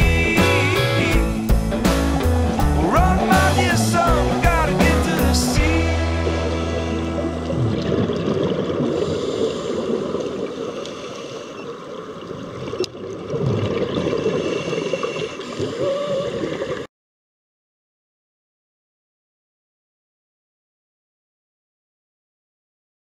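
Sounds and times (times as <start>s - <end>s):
water rushing underwater: 2.1s - 16.9s.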